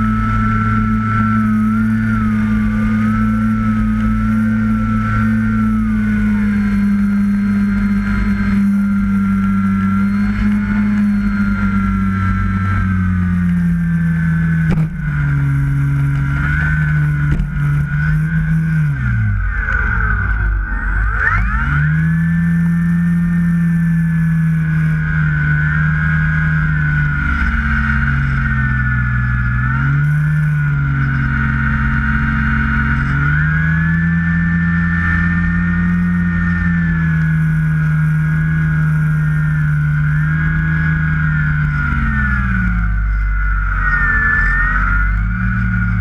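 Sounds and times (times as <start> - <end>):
high-pitched whine: 0.0 - 46.0
model plane motor hum: 0.0 - 46.0.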